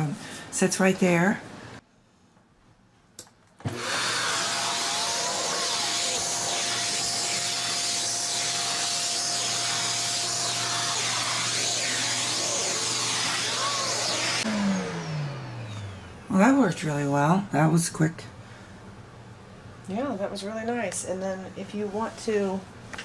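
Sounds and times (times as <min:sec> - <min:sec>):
vacuum nozzle on carpet: 0:03.6 - 0:16.1
vacuum cleaner whining: 0:03.6 - 0:17.1.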